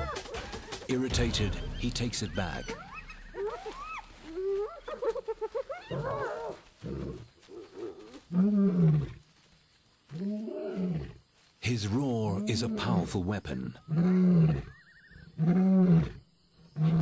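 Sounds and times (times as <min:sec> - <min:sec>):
hyenas whooping and cackling: 0:02.8 - 0:07.2.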